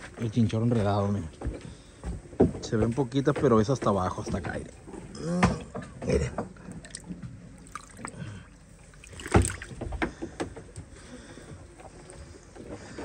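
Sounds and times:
fish splashing in water tub: 0:06.6 - 0:10.6.

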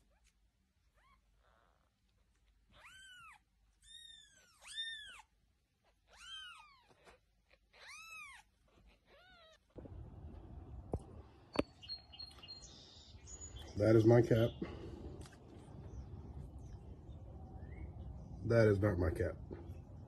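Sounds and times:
kittens mewing: 0:02.6 - 0:10.4.

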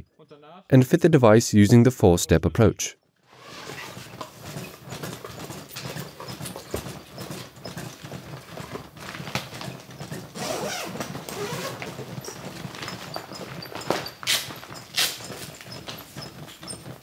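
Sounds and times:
rustling and clatter of unpacking: 0:03.3 - 0:17.0
chest compressions clicking: 0:04.2 - 0:17.0.

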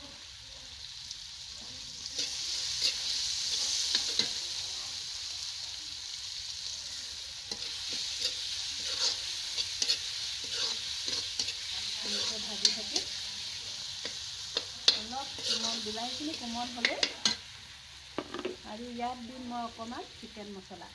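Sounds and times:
vegetables sizzling in hot oil: 0:00.0 - 0:20.9
spatula scraping and knocking pan: 0:18.2 - 0:18.6.

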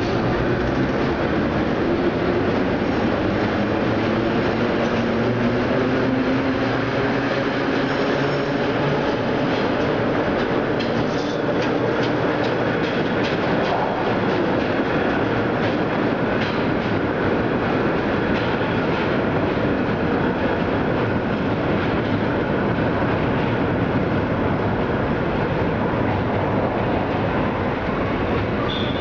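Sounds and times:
subway train rumbling: 0:00.0 - 0:29.0
wheels clicking over rail joints: 0:06.6 - 0:20.4.

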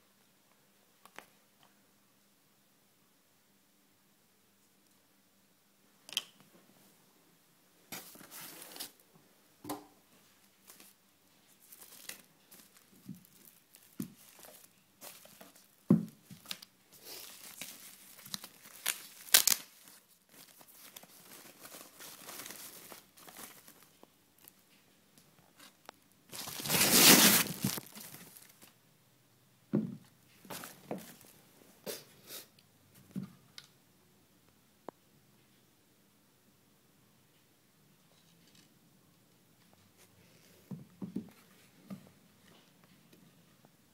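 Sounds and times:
packing wrap crinkling and tearing: 0:11.6 - 0:24.6, 0:26.3 - 0:28.8.

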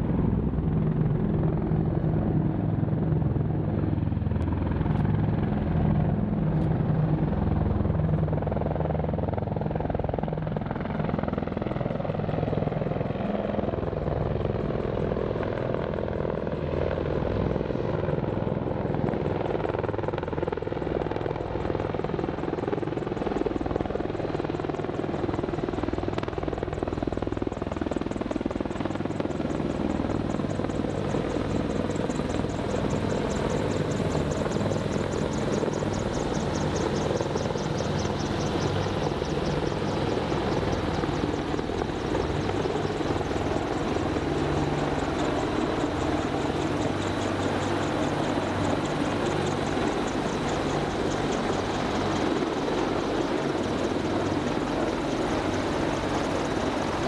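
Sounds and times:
helicopters flying overhead: 0:00.0 - 0:57.0.

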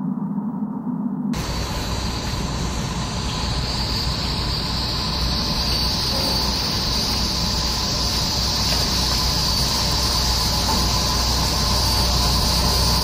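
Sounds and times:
low hum: 0:00.0 - 0:13.0
loud steady hissing: 0:01.4 - 0:13.0.

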